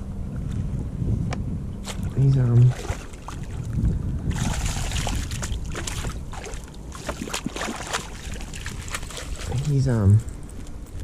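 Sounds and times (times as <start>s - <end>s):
low rumble: 0.0s - 11.0s
fish splashing in water: 4.3s - 9.6s.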